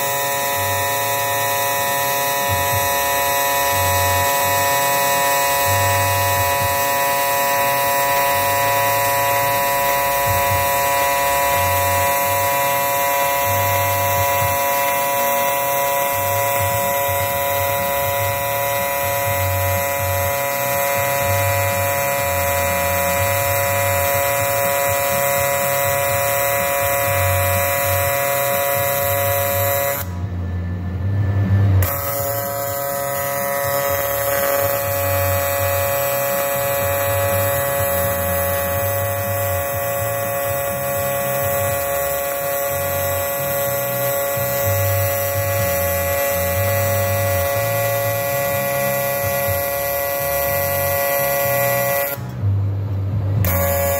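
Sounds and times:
welding arc buzzing: 0.0s - 53.9s
low uneven hum: 26.7s - 53.9s.

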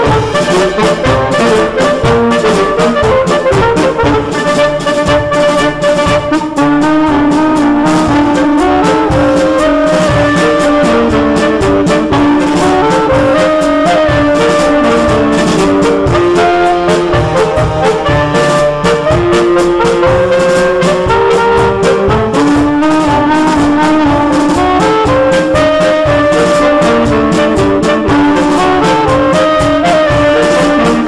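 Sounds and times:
percussion strikes: 0.0s - 31.0s
saxophones playing in harmony: 0.0s - 31.0s.

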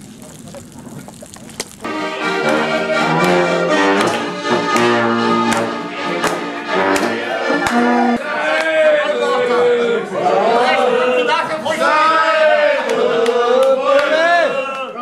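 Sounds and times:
accordion playing chords: 1.9s - 8.2s.

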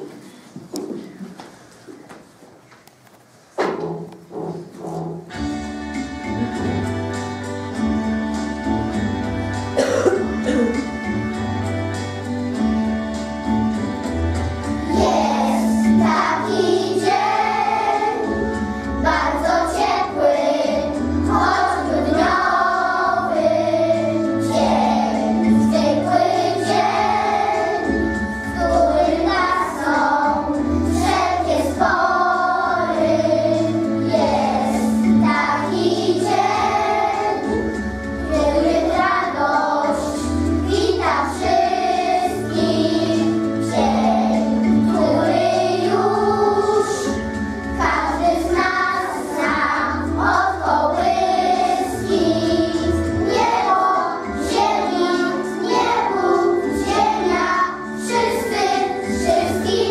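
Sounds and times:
instrumental accompaniment with bass: 3.7s - 59.9s
children's choir singing: 9.8s - 11.2s, 14.6s - 59.9s.

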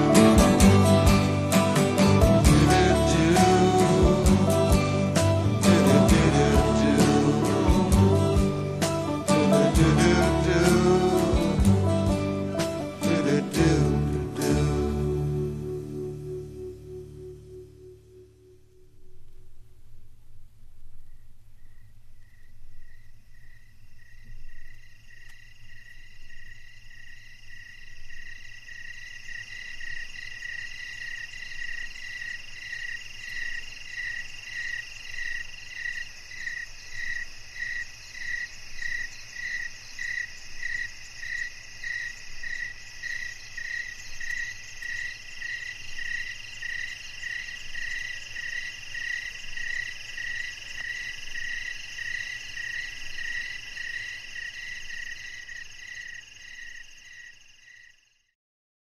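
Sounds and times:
pulsed insect call: 21.1s - 58.3s
steady high insect trilling: 21.6s - 58.3s.

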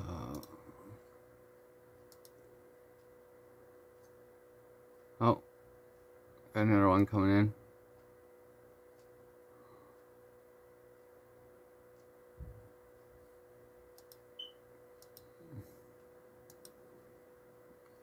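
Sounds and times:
faint hum: 0.0s - 18.0s
faint clicks: 2.0s - 3.1s, 13.9s - 14.2s, 16.4s - 16.8s.

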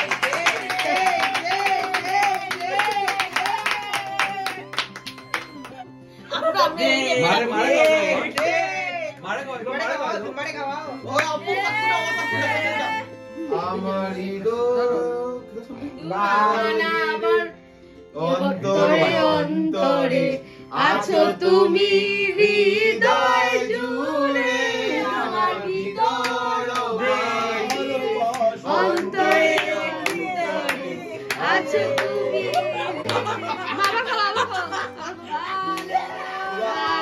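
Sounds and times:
song with singing and instruments: 11.0s - 37.0s.

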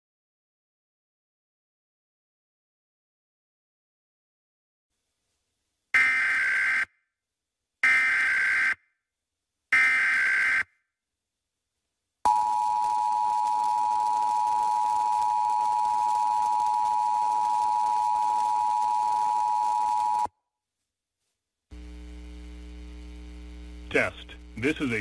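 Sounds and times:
faint steady hum: 21.7s - 25.0s.

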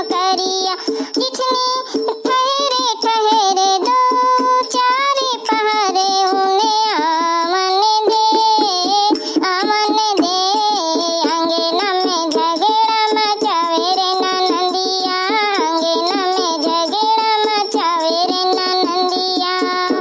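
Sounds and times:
dholak drum beating: 0.0s - 20.0s
woman singing folk song: 0.0s - 20.0s.

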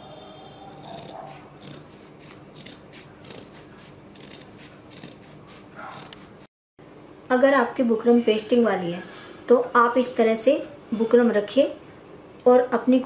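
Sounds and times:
scissors snipping fabric: 0.8s - 6.5s.

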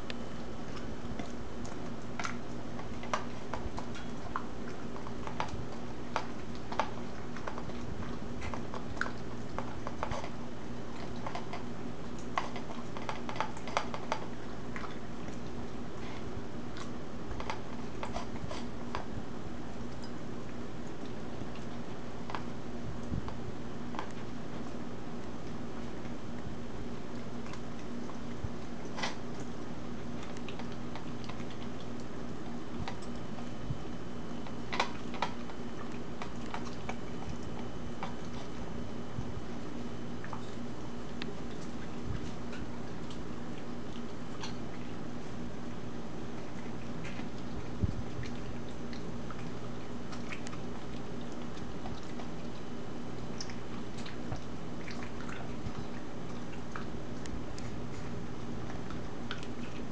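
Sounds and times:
dog crunching raw vegetables: 0.0s - 59.9s
steady low hum: 0.0s - 59.9s.

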